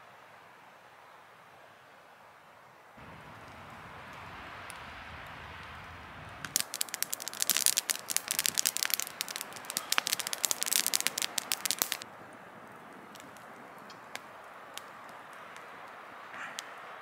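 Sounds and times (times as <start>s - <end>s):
rushing hiss: 3.0s - 12.0s
campfire crackling and popping: 3.0s - 17.0s.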